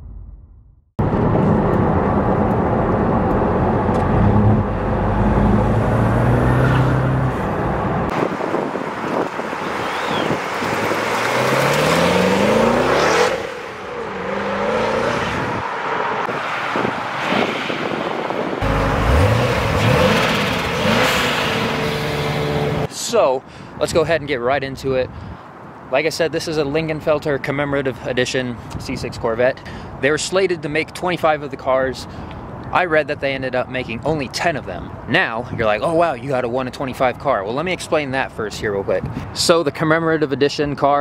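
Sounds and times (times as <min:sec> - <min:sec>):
car engine accelerating past: 0:09.8 - 0:16.2.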